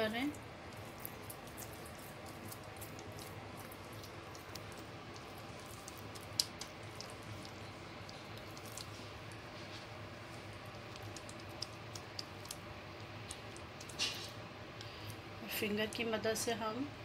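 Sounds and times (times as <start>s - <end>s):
fingers squishing sticky mixture: 0.0s - 15.2s
faint hum: 0.0s - 17.0s.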